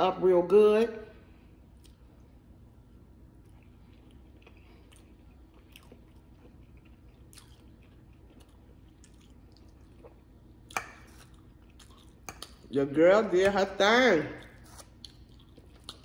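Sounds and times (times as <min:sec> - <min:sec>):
person chewing food: 0:01.5 - 0:12.7, 0:14.4 - 0:16.0.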